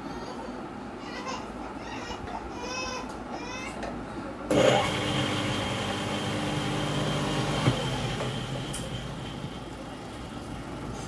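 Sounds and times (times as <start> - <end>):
motor whirring down: 4.5 - 9.7
electric motor humming: 4.5 - 9.8.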